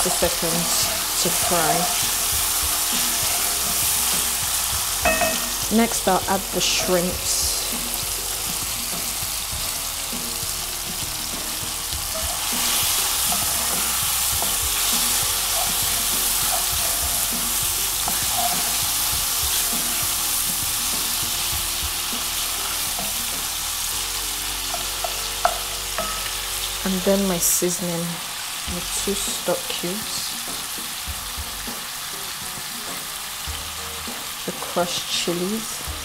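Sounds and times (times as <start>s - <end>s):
wooden spoon scraping a pan: 0.0s - 5.8s, 10.9s - 23.9s
food sizzling in hot oil: 0.0s - 36.0s.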